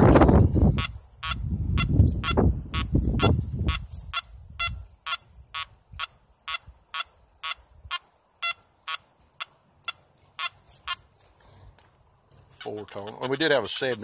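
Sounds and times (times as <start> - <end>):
metal detector beeps: 0.8 - 2.4, 3.2 - 11.1.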